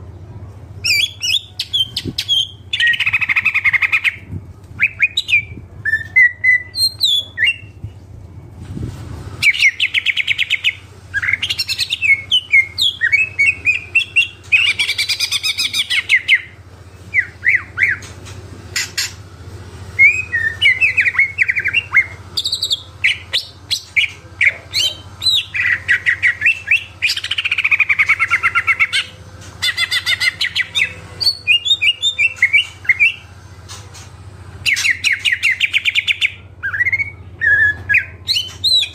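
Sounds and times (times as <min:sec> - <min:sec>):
bird singing chirps and trills: 0:09.4 - 0:18.1, 0:20.0 - 0:34.0, 0:34.6 - 0:38.9.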